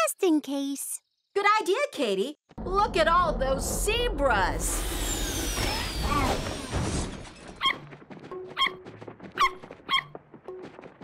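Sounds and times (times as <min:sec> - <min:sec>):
cartoon rushing whoosh: 0:04.6 - 0:07.1.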